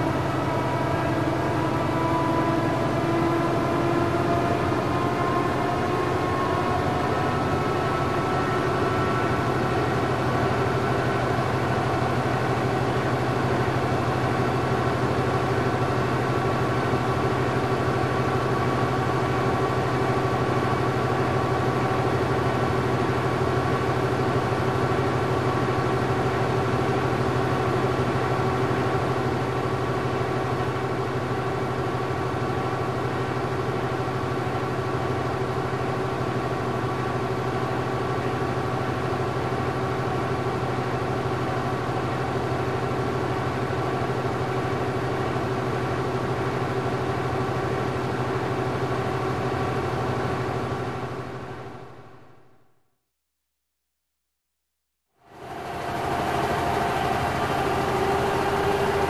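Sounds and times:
printing press rumbling: 0:55.3 - 0:59.0.

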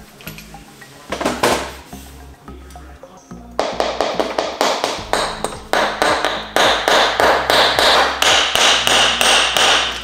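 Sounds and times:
background music with percussive beat: 0:00.0 - 0:10.0
bass line: 0:01.8 - 0:09.6.

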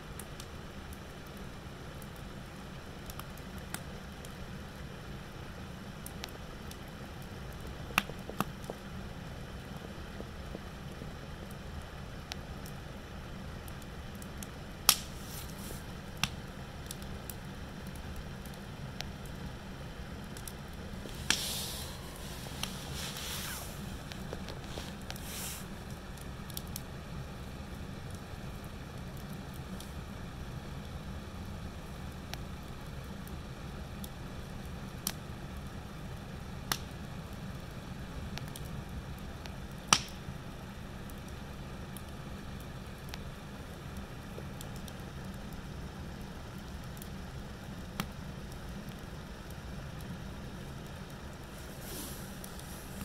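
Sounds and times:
wood fire rumbling: 0:00.1 - 0:53.0
logs popping: 0:14.8 - 0:17.0, 0:20.4 - 0:26.8, 0:39.9 - 0:40.2
short hiss: 0:21.0 - 0:25.7, 0:51.5 - 0:53.0.

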